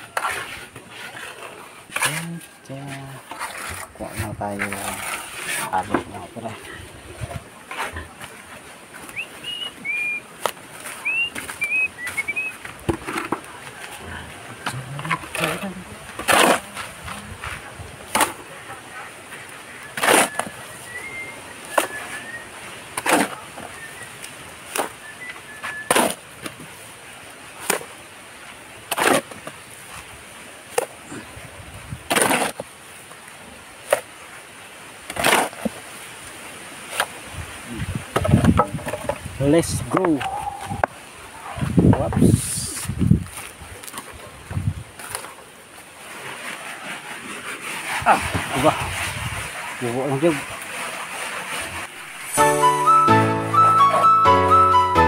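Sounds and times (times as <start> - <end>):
shovel scraping cement on concrete: 0.0 - 6.8, 7.6 - 8.6, 14.6 - 18.7, 19.8 - 26.5, 28.9 - 29.6, 32.1 - 32.7, 35.1 - 35.8, 46.0 - 52.6
high whistled notes: 9.1 - 10.2, 11.0 - 12.6, 52.2 - 55.0.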